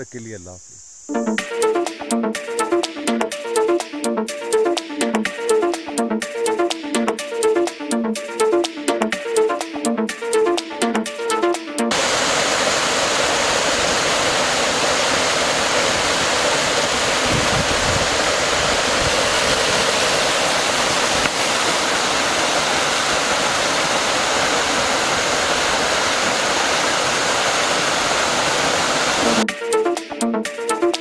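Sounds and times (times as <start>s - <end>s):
small waterfall splashing: 11.9s - 29.4s.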